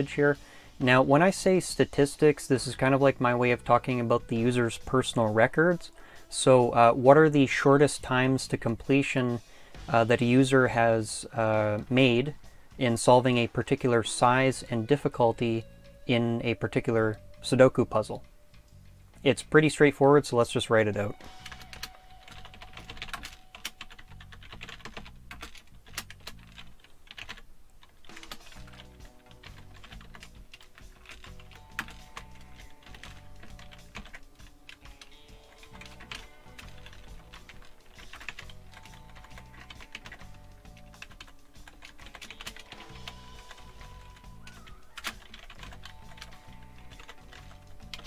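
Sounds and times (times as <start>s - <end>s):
quiet background music with beat: 0.0s - 27.4s, 28.0s - 48.0s
computer keyboard typing: 21.2s - 48.0s.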